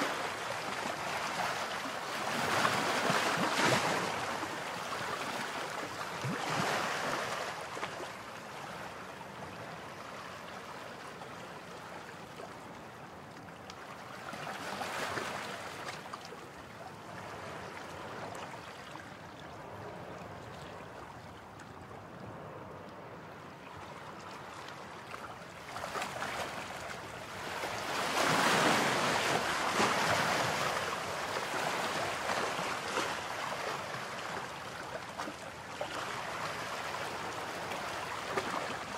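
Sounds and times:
sea surf washing on sand: 0:24.3 - 0:38.9.

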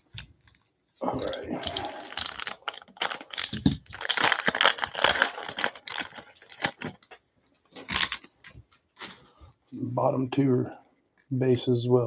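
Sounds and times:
plastic wrapper crinkling: 0:00.0 - 0:09.3.

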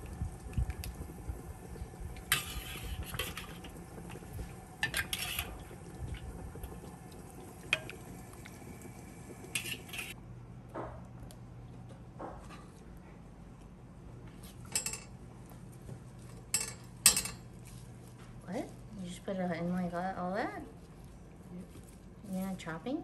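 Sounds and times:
metal spatula scraping wok: 0:02.3 - 0:03.6, 0:04.8 - 0:05.6, 0:09.6 - 0:10.2.

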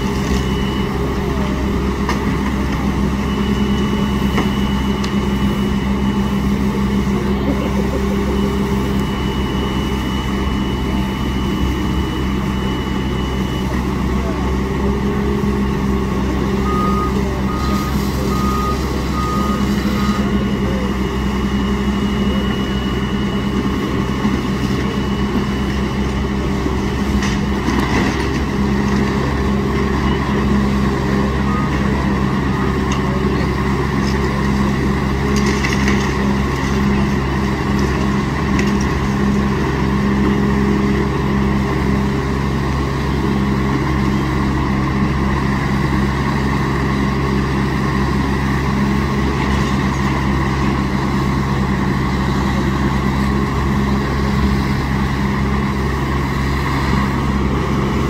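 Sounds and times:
backup alarm beeping: 0:00.0 - 0:34.0
heavy diesel machinery running: 0:00.0 - 0:58.0.

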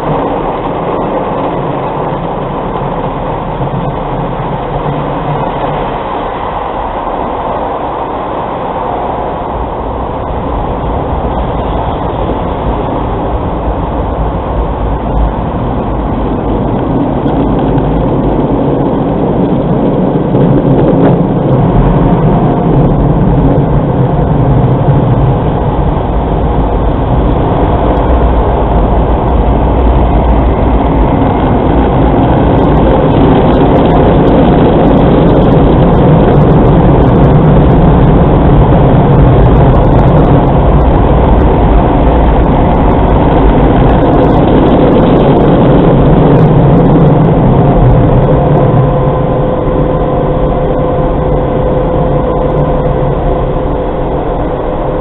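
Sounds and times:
car engine and cabin rumble: 0:00.0 - 0:55.0.

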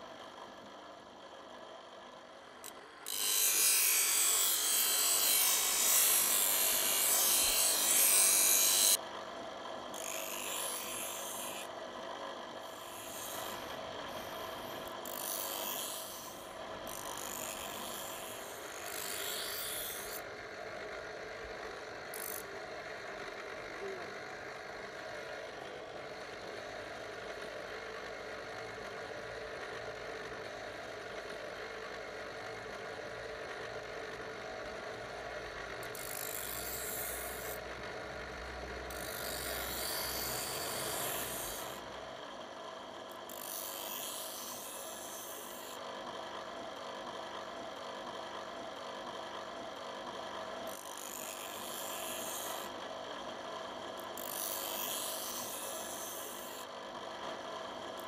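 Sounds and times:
bench grinder grinding metal: 0:02.6 - 0:09.0, 0:09.9 - 0:11.8, 0:12.4 - 0:20.3, 0:22.1 - 0:22.6, 0:35.6 - 0:42.2, 0:43.2 - 0:45.9, 0:50.7 - 0:53.0, 0:54.0 - 0:56.8.

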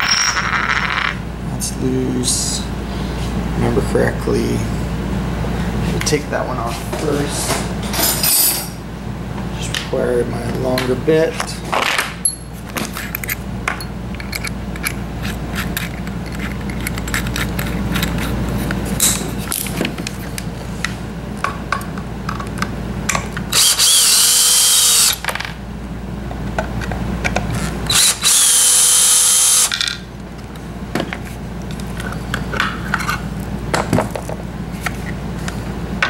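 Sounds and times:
cordless drill running: 0:23.5 - 0:25.2, 0:27.9 - 0:29.7.

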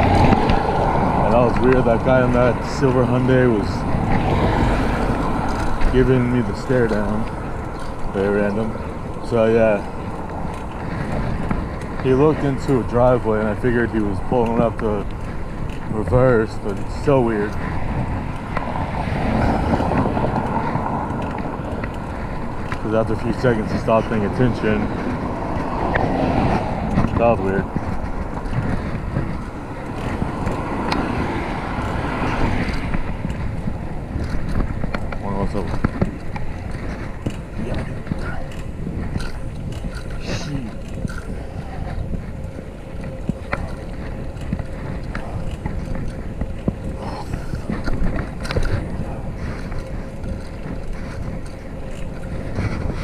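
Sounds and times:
bicycle road rumble: 0:00.0 - 0:53.0
car traffic: 0:00.0 - 0:53.0
wind noise: 0:00.0 - 0:53.0.

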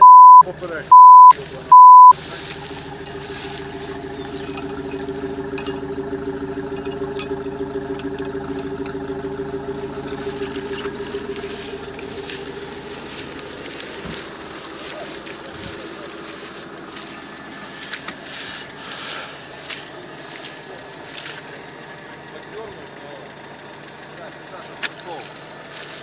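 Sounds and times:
censor bleeps: 0:00.0 - 0:02.2
car engine idling: 0:00.0 - 0:26.0.

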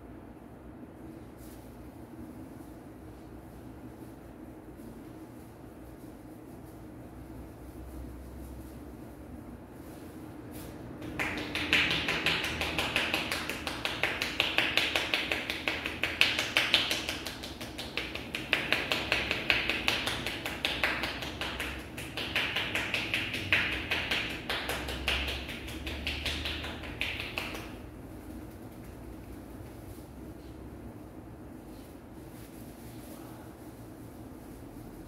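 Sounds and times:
hands tapping on head: 0:11.0 - 0:27.8.

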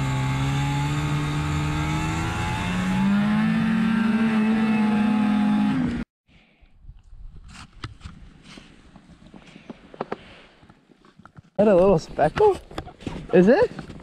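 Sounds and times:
snowmobile engine running: 0:00.0 - 0:06.0.

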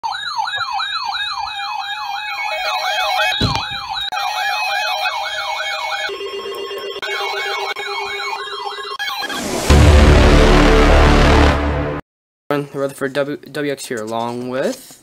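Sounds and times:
steady low siren tone: 0:00.0 - 0:06.2
siren yelp: 0:00.0 - 0:09.9
hi-lo siren warble: 0:00.0 - 0:11.6.

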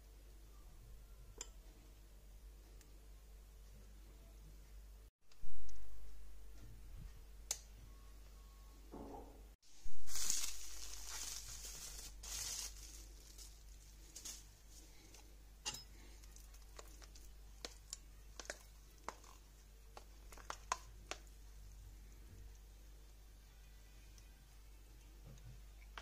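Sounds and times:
plastic wrapper crinkling: 0:09.8 - 0:14.5.

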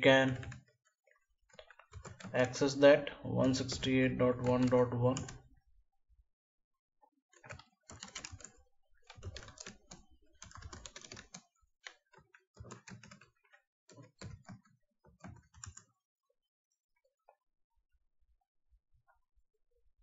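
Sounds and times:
computer keyboard typing: 0:00.2 - 0:02.8, 0:03.4 - 0:05.4, 0:07.3 - 0:15.9.

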